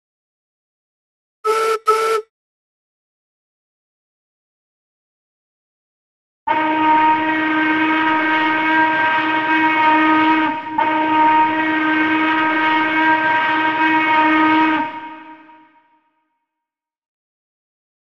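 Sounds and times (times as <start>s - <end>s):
steam locomotive whistle blasts: 1.5s - 2.3s, 6.5s - 16.0s.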